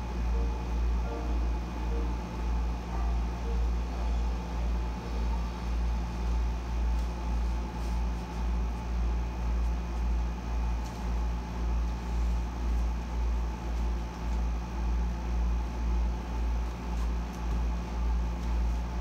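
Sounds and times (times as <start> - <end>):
faint high whine: 0.0 - 16.7
air conditioner throbbing hum: 0.0 - 19.0.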